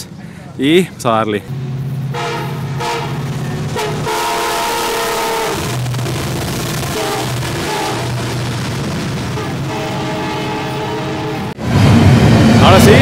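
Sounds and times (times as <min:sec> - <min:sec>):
locomotive engine drone: 0:00.0 - 0:13.0
train rumbling past: 0:00.0 - 0:13.0
train horn blasts: 0:02.1 - 0:06.2, 0:06.8 - 0:08.4, 0:09.3 - 0:11.6.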